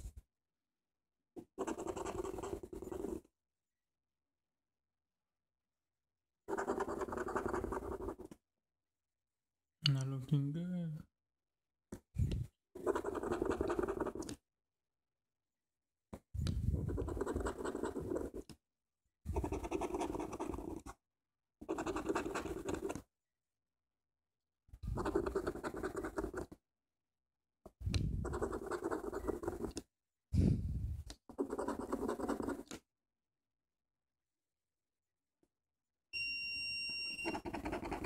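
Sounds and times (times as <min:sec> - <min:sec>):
coin scratching lottery ticket: 0:01.6 - 0:03.2, 0:06.5 - 0:08.3, 0:12.8 - 0:14.2, 0:16.9 - 0:18.4, 0:19.3 - 0:20.9, 0:21.6 - 0:22.9, 0:25.0 - 0:26.5, 0:28.2 - 0:29.7, 0:31.3 - 0:32.6, 0:37.2 - 0:38.0.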